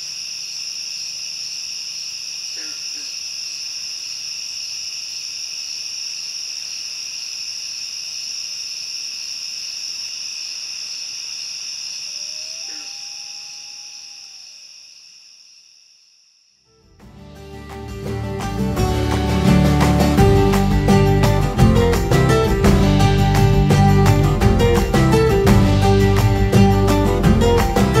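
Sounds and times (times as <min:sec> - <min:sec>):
insect chorus of high trills: 0:00.0 - 0:16.7.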